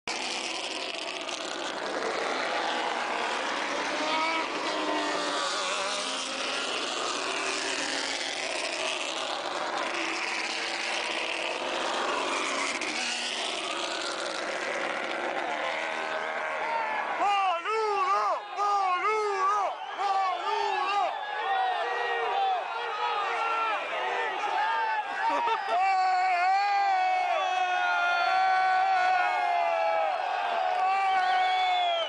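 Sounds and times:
race car engines passing: 0.1s - 17.3s
spectators' voices: 16.6s - 26.4s.

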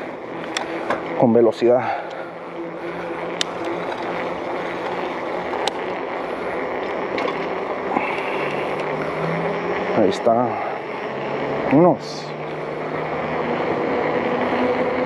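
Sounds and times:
bike tyres on asphalt: 0.0s - 15.0s
sharp bike clicks: 4.8s - 5.9s.

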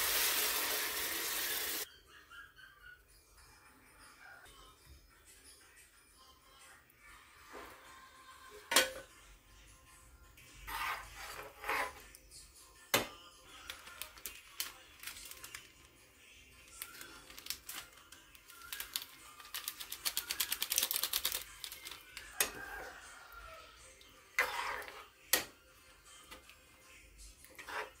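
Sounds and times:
plastic sachet crinkling: 13.5s - 15.9s, 16.6s - 22.2s.

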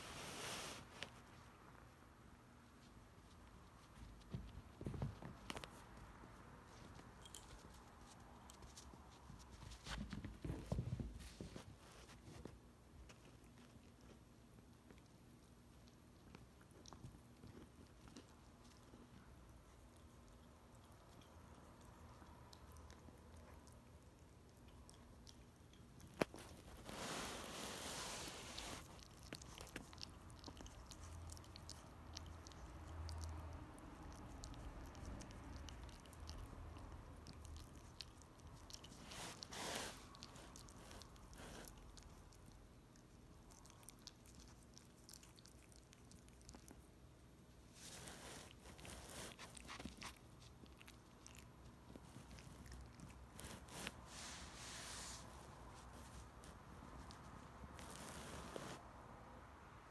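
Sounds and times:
soft rustle: 0.0s - 59.1s
dog gnawing on chew toy: 28.2s - 47.0s, 47.7s - 54.0s.

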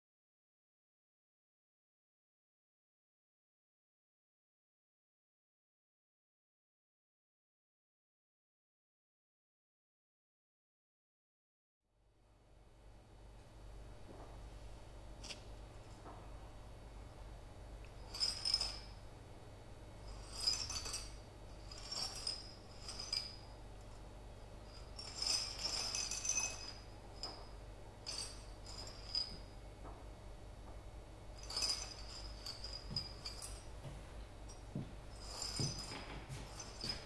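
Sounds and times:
small hard objects clinking: 24.8s - 27.5s.

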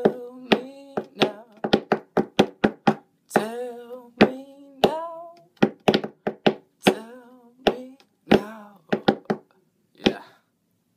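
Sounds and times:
man singing: 0.0s - 2.0s, 3.3s - 5.6s, 6.8s - 10.4s
hands slapping a hard surface: 0.0s - 3.5s, 4.2s - 7.1s, 7.7s - 9.5s.

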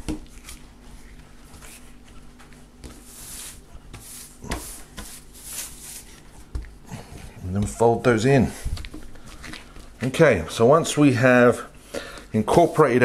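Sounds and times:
dough rubbing on countertop: 0.2s - 9.0s, 12.4s - 13.0s.

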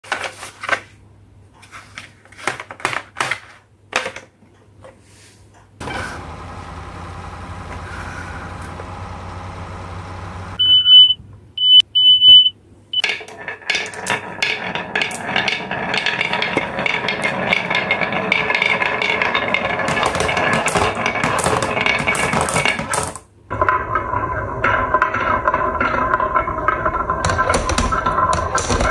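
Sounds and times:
steady hum: 5.8s - 11.6s
short high beeps: 10.6s - 12.5s
marbles rattling down wooden ramp: 13.0s - 28.9s.

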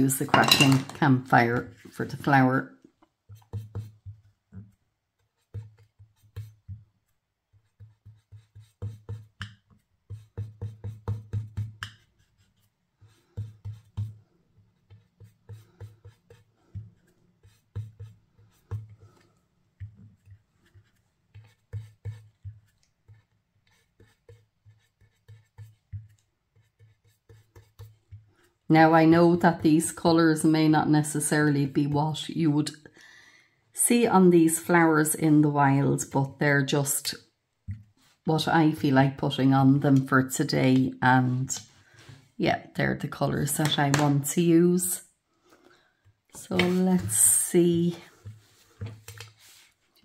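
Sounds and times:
brush dabbing dull taps: 0.0s - 32.0s, 37.5s - 42.1s, 43.2s - 44.8s, 46.0s - 50.0s.

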